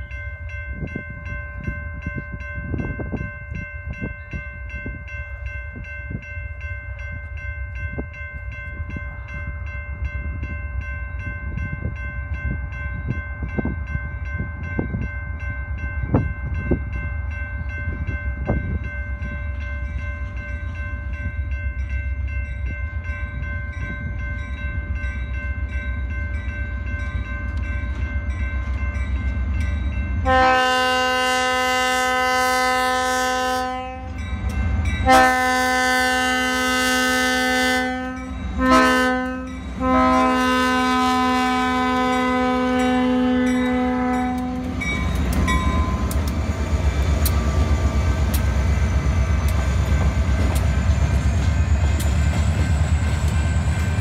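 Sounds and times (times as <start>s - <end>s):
locomotive engine rumble: 22.9s - 54.0s
locomotive air horn blasts: 30.2s - 34.2s, 35.0s - 44.8s.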